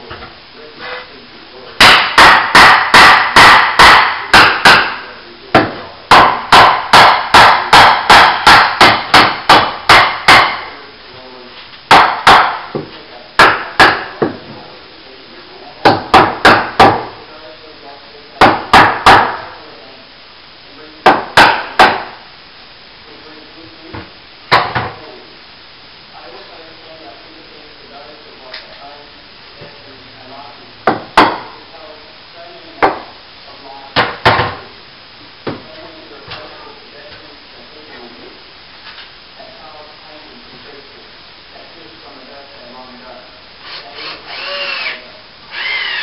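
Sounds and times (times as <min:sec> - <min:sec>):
hammer driving nails into wood: 0:01.8 - 0:05.0, 0:05.6 - 0:10.7, 0:11.9 - 0:14.4, 0:15.8 - 0:17.1.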